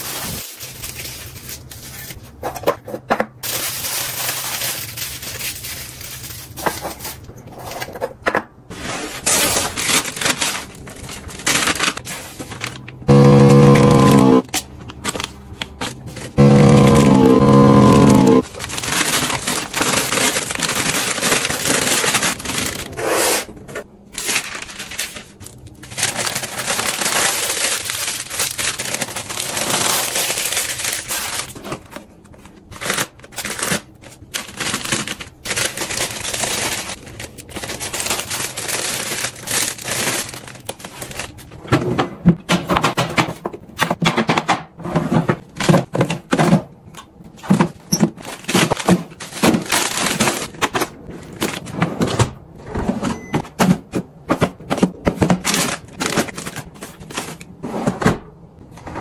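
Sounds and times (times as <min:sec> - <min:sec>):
plastic bags crinkling: 0:00.0 - 0:02.4, 0:03.4 - 0:07.3, 0:09.2 - 0:13.0, 0:18.4 - 0:23.0, 0:24.1 - 0:41.6, 0:47.7 - 0:51.7, 0:54.6 - 0:57.6.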